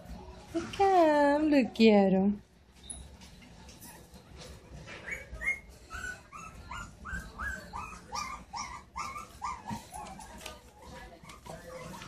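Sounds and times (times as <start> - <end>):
puppy high-pitched cries: 5.0 - 10.4.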